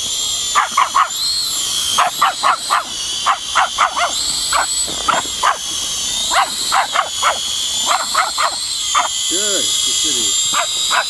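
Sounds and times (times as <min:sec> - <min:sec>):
toy drone motors whining: 0:00.0 - 0:11.0
puppy barking: 0:00.5 - 0:01.2, 0:02.0 - 0:09.2, 0:10.5 - 0:11.0.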